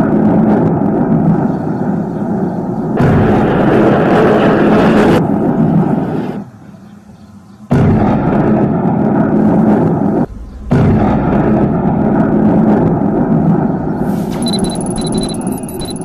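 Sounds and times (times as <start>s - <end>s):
noisy rumble: 0.0s - 7.0s, 7.6s - 16.0s
shell explosions: 2.9s - 6.0s, 7.7s - 15.5s.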